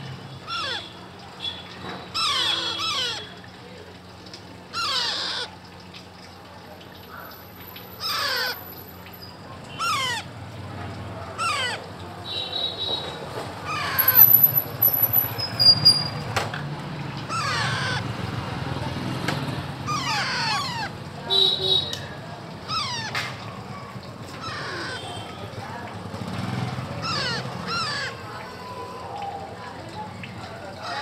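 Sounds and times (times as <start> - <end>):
parakeet chicks squawking: 0.4 - 3.4, 4.7 - 5.6, 7.1 - 10.3, 11.2 - 16.2, 17.3 - 18.1, 19.8 - 22.0, 22.6 - 25.7, 26.9 - 29.4, 30.8 - 31.0.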